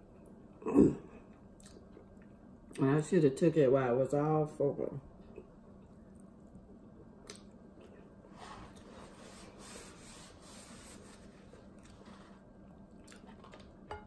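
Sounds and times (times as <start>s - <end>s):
paper towel rustling: 8.3s - 12.5s.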